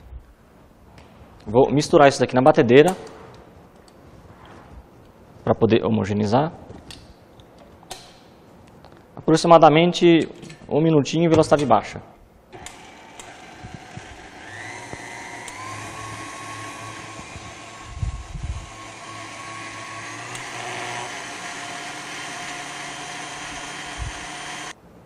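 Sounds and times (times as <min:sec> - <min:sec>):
stand mixer motor whine: 0:12.6 - 0:24.8.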